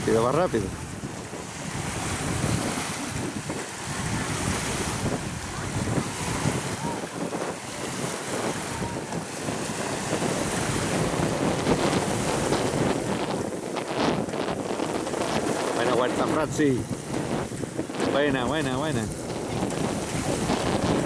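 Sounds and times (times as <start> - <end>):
sea water lapping: 0.0 - 21.0
wind buffeting microphone: 0.0 - 21.0.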